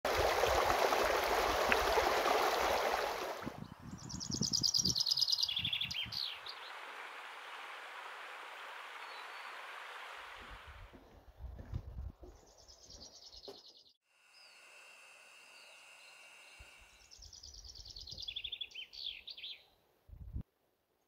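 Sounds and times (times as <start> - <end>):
chaffinch singing: 2.6 - 7.7, 8.9 - 9.7, 15.4 - 19.8.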